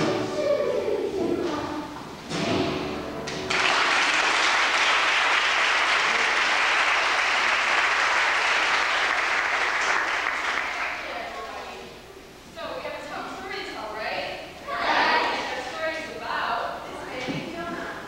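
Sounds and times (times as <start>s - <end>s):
audience applause: 3.5s - 11.3s.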